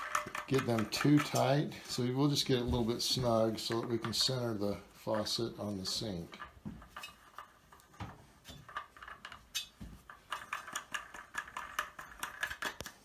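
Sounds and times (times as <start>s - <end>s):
wing nuts clicking and rattling: 0.0s - 1.6s, 5.9s - 13.0s.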